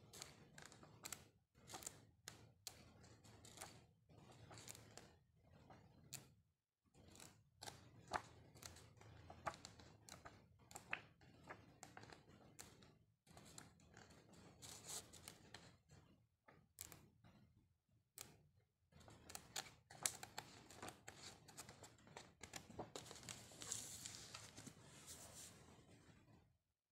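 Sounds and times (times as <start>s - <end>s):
pages rustling: 14.6s - 15.2s, 19.2s - 25.7s.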